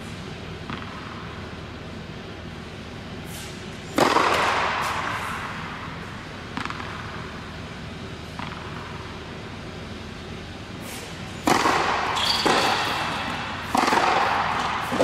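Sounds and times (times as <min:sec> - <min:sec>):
ball bouncing on hard court: 0:00.6 - 0:01.3, 0:04.0 - 0:05.5, 0:06.4 - 0:07.3, 0:08.2 - 0:09.2, 0:11.4 - 0:15.0.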